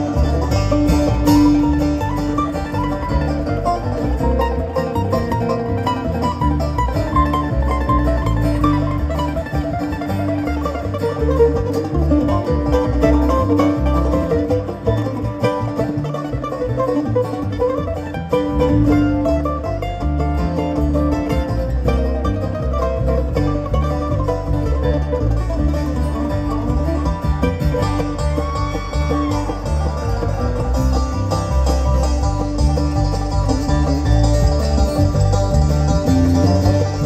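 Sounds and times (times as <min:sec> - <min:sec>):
banjo picking: 0:00.0 - 0:37.0
electric bass: 0:00.0 - 0:37.0
mandolin picking: 0:00.0 - 0:37.0.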